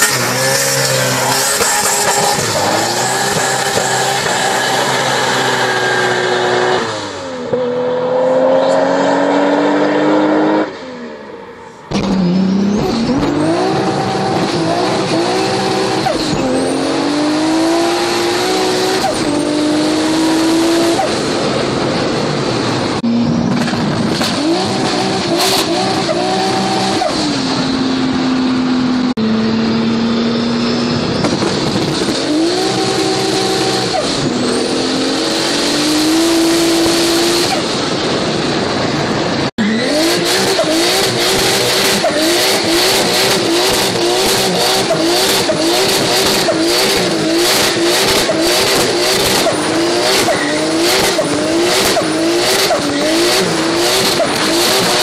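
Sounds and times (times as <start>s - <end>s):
car engine accelerating hard: 0.0s - 10.9s, 11.9s - 55.0s
car engine at high revs: 0.0s - 55.0s.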